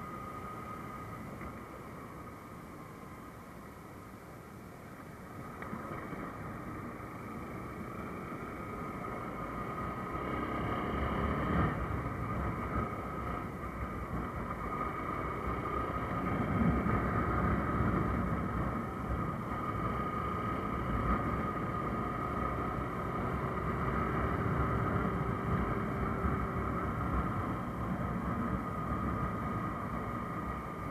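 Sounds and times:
motorcycle engine running: 6.7s - 30.9s.

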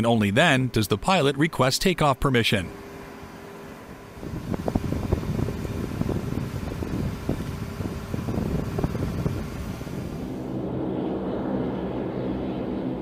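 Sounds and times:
aircraft engines rumbling: 0.0s - 13.0s
rushing and buffeting: 2.6s - 13.0s.

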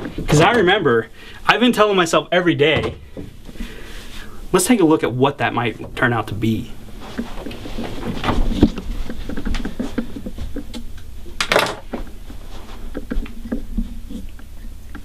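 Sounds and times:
low steady hum: 0.0s - 15.0s
rustling: 6.8s - 10.7s.

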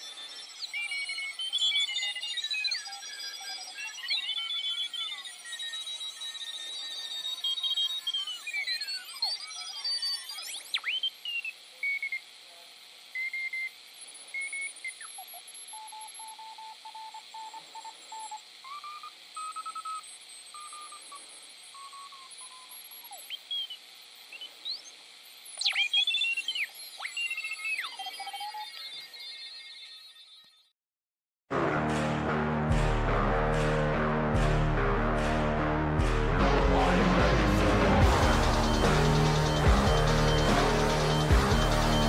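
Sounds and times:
radio receiver hiss: 36.4s - 42.0s.

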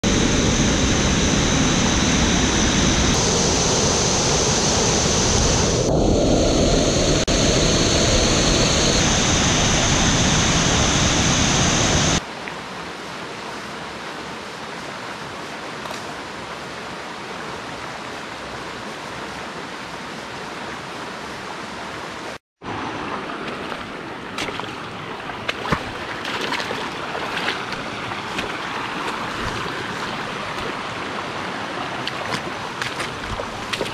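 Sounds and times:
flooded stream rushing loudly: 0.0s - 33.9s
quiet stream flowing: 12.2s - 33.9s
water running over rocks: 22.6s - 33.9s.

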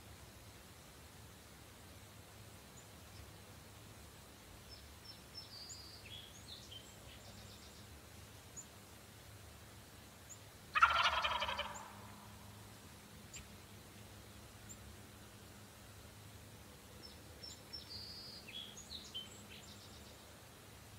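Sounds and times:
faint songbird chirps: 4.1s - 8.8s, 10.0s - 12.6s, 13.2s - 15.0s, 16.2s - 20.9s
turkey gobbling: 10.7s - 12.4s.

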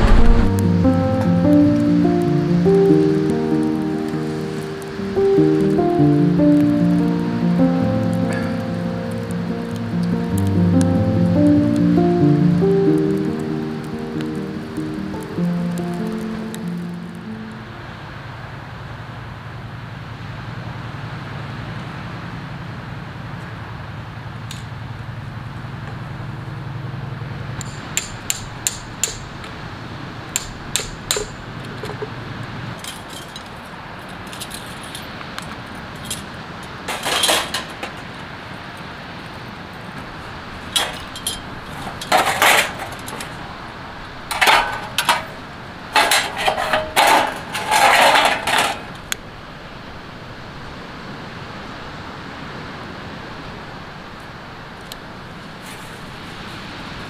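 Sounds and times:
steel parts clinking: 27.6s - 29.5s, 32.8s - 35.2s, 36.0s - 38.1s, 40.6s - 43.4s, 44.2s - 49.2s
metal rattling and scraping: 36.0s - 38.1s, 40.6s - 43.5s, 44.2s - 49.2s.

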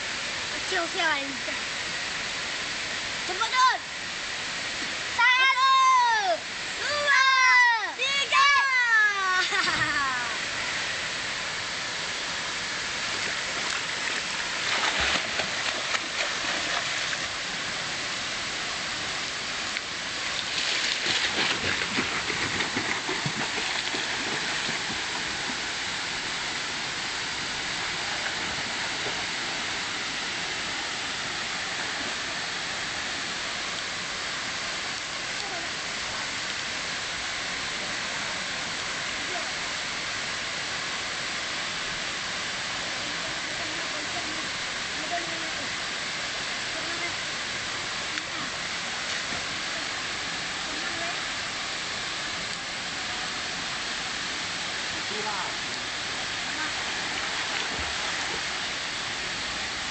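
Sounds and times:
waterfall rushing: 0.0s - 59.9s
swimmer splashing: 13.0s - 17.6s, 20.2s - 25.8s, 56.5s - 58.9s.

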